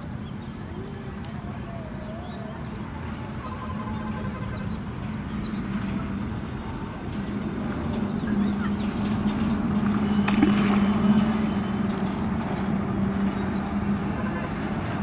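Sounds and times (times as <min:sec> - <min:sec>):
small birds chirping: 0:00.0 - 0:06.1
thin high-pitched whine: 0:00.0 - 0:06.2, 0:07.8 - 0:10.9
steady low hum: 0:00.0 - 0:15.0.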